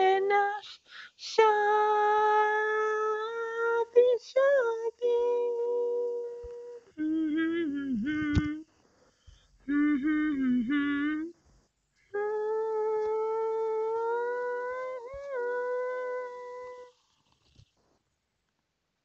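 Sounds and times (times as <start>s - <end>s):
person singing wordlessly: 0.0s - 8.6s, 9.7s - 11.4s, 12.1s - 17.0s.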